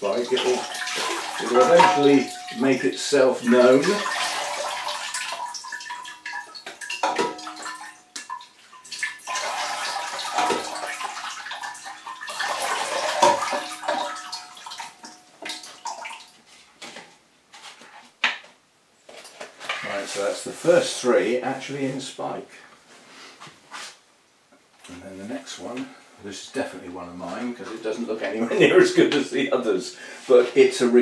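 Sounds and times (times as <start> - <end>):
water trickling into bowl: 0.0 - 16.4.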